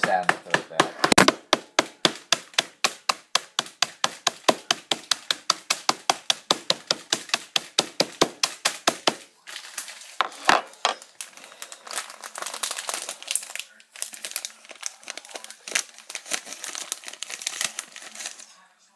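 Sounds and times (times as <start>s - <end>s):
rapid sharp knocking: 0.0s - 9.2s
plastic packet crinkling: 9.4s - 18.7s.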